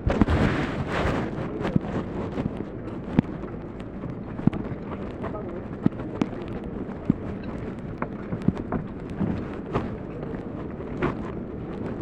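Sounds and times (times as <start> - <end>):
wind: 0.0 - 12.0.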